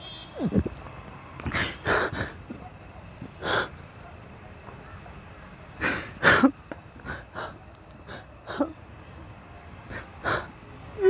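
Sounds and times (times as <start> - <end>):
person crying with gasping sobs: 5.8 - 8.8, 9.9 - 10.6.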